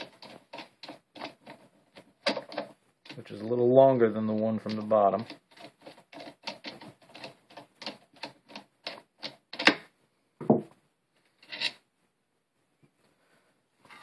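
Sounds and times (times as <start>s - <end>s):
screwdriver rasping scrape: 0.0s - 3.5s, 4.4s - 9.8s, 11.3s - 11.8s.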